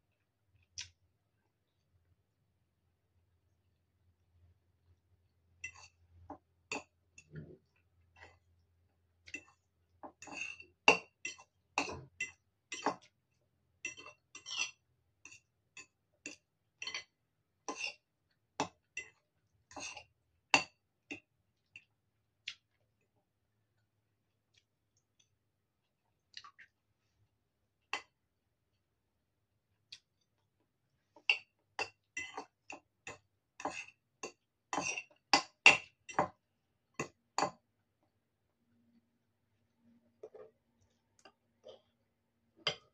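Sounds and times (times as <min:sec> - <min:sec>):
fork scraping ceramic bowl: 0:10.2 - 0:13.0, 0:13.9 - 0:15.5, 0:17.7 - 0:18.0, 0:19.7 - 0:20.1, 0:33.6 - 0:34.0, 0:34.7 - 0:35.2.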